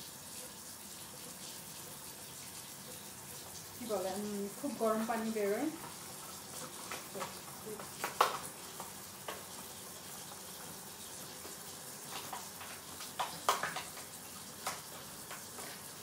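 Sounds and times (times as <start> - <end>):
tap water running: 0.0 - 16.0
plastic punnets clicking and knocking: 6.6 - 9.5, 12.1 - 15.8.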